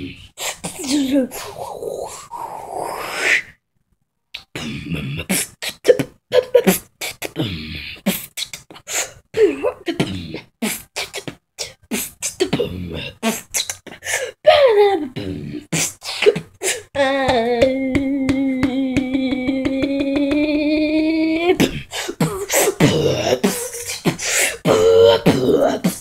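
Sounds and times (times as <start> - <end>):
beatboxing clicks and pops: 4.3 - 4.6, 8.0 - 8.9.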